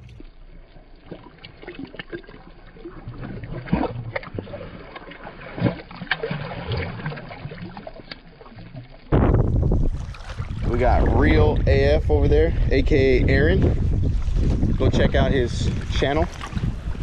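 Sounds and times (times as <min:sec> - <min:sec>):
fish splashing in water: 0:01.0 - 0:10.8.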